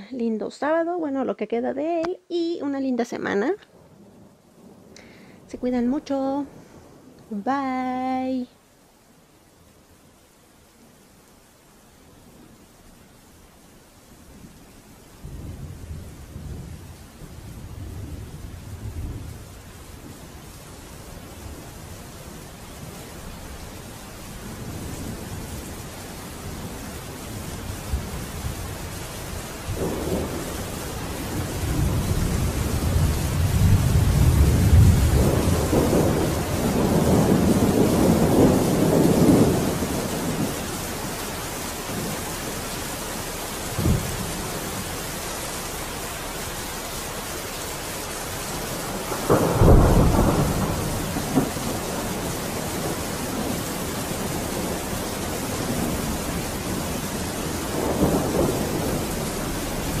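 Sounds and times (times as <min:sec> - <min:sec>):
steady rain: 0:00.0 - 1:00.0
thunder rumbling: 0:14.2 - 1:00.0.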